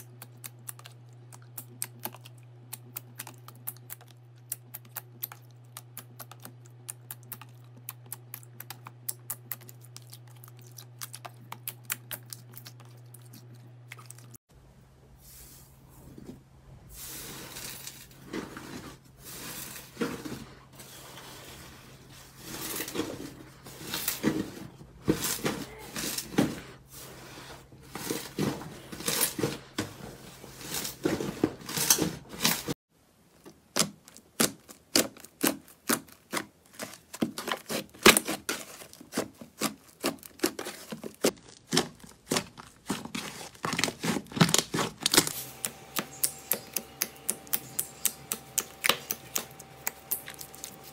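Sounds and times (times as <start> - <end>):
hands squishing slime: 33.6 - 50.9.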